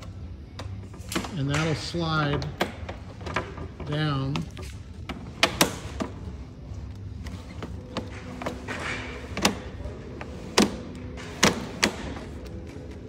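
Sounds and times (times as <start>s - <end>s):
slat panel sliding with scraping hiss: 7.2s - 12.4s.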